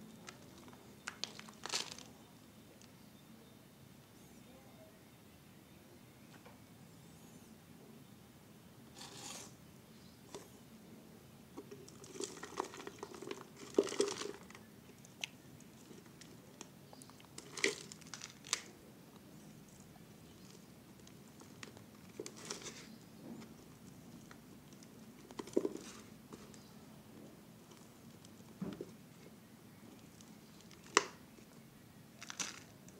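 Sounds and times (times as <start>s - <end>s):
plastic bottle crinkling: 0.2s - 2.2s, 11.6s - 18.7s, 20.3s - 26.7s, 32.2s - 32.9s.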